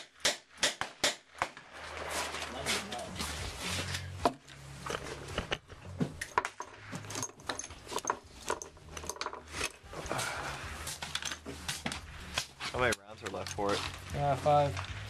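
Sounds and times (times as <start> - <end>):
metallic clicks of rifle cartridges: 4.4 - 9.9, 10.9 - 14.0.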